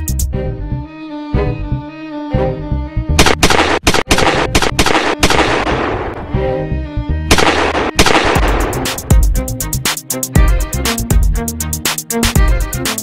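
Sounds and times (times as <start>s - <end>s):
background music: 0.0s - 13.0s
gunshots: 3.2s - 6.2s, 7.3s - 9.1s.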